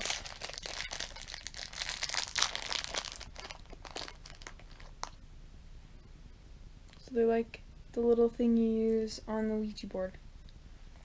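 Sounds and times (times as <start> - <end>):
plastic bag crinkling: 0.0 - 5.2.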